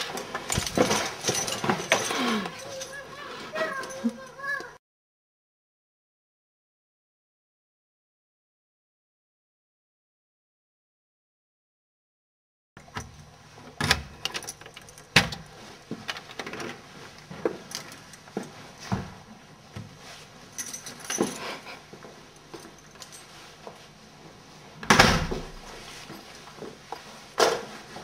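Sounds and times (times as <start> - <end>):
objects being handled: 0.0 - 4.7.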